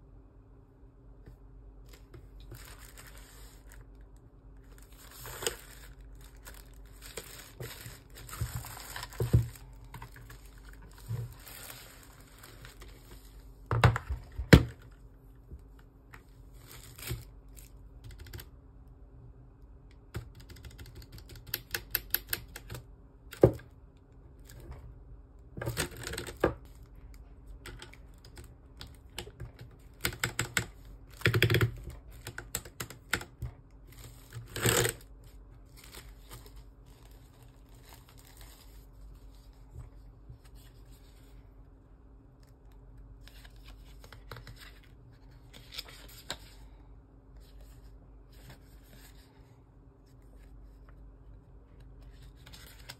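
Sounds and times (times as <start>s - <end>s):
plastic bag rustling: 1.9s - 4.0s, 4.6s - 13.5s
mechanical keyboard typing: 18.0s - 18.5s, 20.1s - 22.9s, 27.6s - 33.4s.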